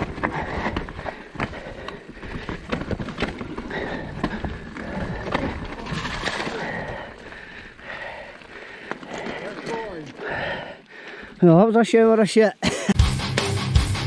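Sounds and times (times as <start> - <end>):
bike clattering and rattling: 0.0 - 10.5.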